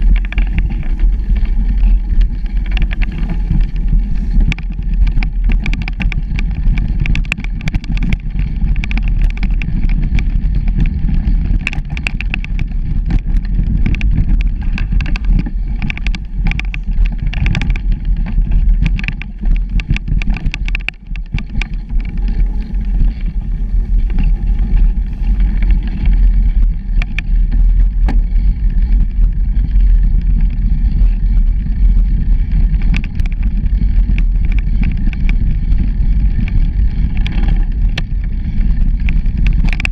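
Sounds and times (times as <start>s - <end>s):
bicycle clicks and rattles: 0.0s - 39.9s
bicycle tyres on dirt: 0.0s - 39.9s
wind on microphone: 0.0s - 39.9s.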